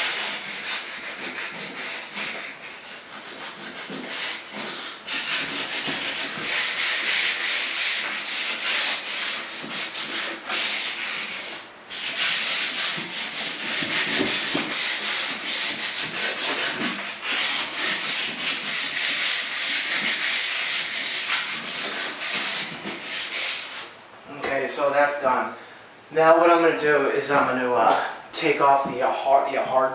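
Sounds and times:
sandpaper rubbing by hand: 0.0s - 23.9s.

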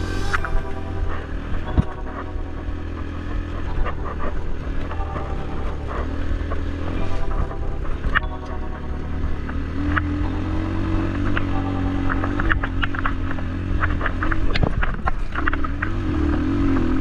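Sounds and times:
vehicle engine droning: 0.0s - 17.0s
small rattles and clicks: 12.4s - 16.0s.

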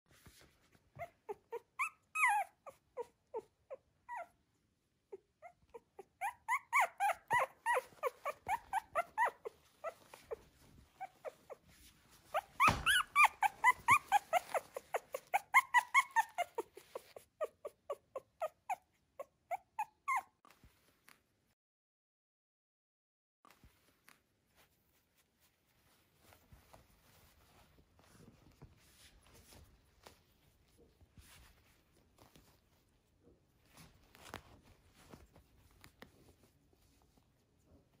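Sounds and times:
puppy squeaking and whimpering: 0.8s - 4.4s, 5.0s - 20.6s.

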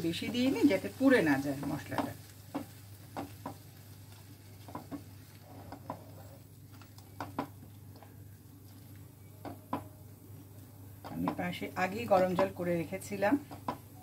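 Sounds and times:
faint sizzle: 0.0s - 14.0s
spatula scraping a frying pan: 4.6s - 6.4s.

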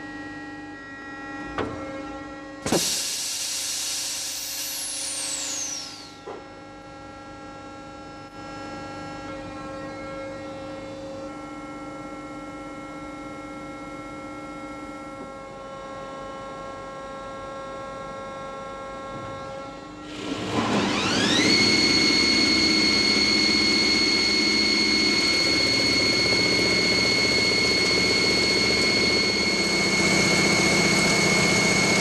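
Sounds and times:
hum of held tones: 5.6s - 20.0s.

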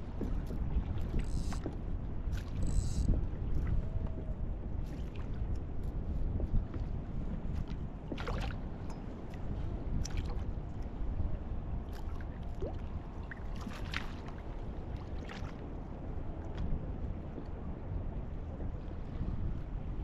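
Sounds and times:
water lapping against kayak: 0.0s - 20.0s
wind buffeting microphone: 0.0s - 20.0s
water splashes: 11.9s - 15.6s.

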